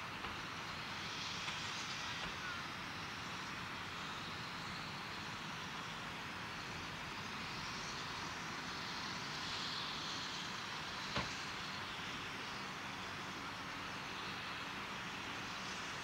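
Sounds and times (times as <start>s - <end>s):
steam locomotive hissing rush: 0.0s - 16.0s.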